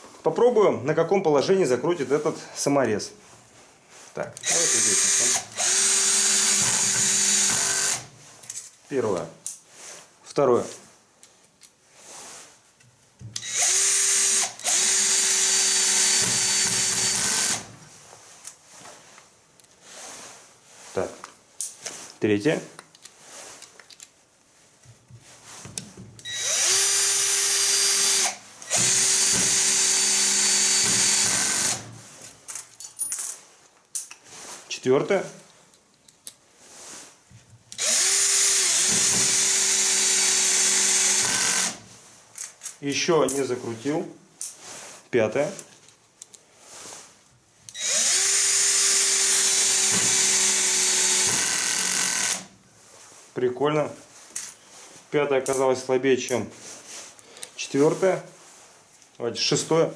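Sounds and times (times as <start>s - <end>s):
cordless drill driving screw: 4.4s - 8.1s, 13.4s - 17.8s, 26.2s - 32.0s, 37.7s - 41.8s, 47.7s - 52.5s.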